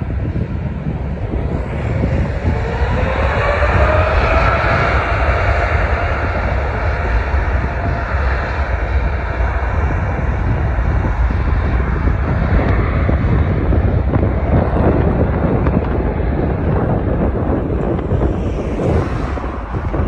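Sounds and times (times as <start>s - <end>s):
jet engines roaring: 0.0s - 20.0s
thin rising whine: 16.8s - 20.0s.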